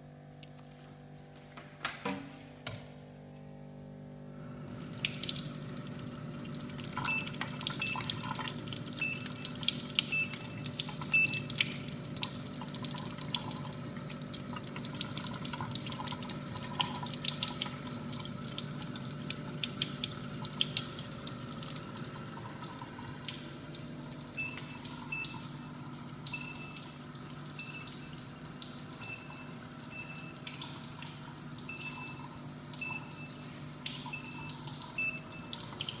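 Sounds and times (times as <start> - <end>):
short electronic beeps: 31.7 - 33.4, 34.1 - 35.6.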